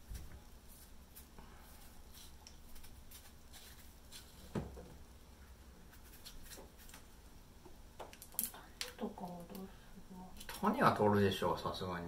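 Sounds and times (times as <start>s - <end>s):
knives scraping fruit peel: 5.9s - 7.0s.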